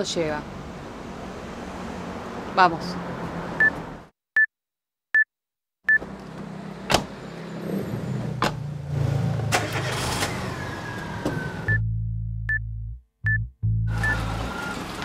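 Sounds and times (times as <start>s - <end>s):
car engine humming: 5.9s - 15.0s
high electronic beeps: 13.3s - 14.7s.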